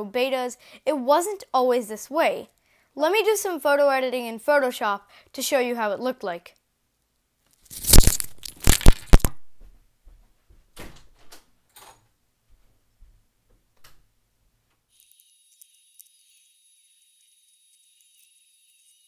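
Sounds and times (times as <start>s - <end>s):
microphone handling rustles and knocks: 7.6s - 11.4s.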